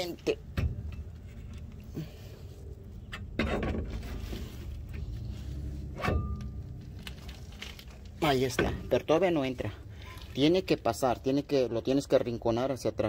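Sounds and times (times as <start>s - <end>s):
low handling rumble with knocks: 0.2s - 1.9s, 2.8s - 9.3s.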